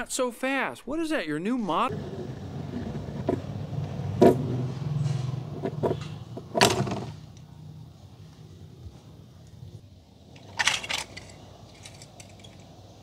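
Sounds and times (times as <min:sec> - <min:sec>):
toy car wheels rumbling: 0:01.9 - 0:07.4, 0:09.5 - 0:13.0.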